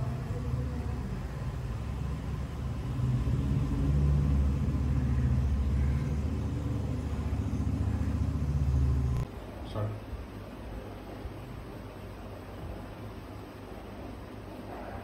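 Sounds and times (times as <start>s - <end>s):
low rumble: 0.0s - 9.3s.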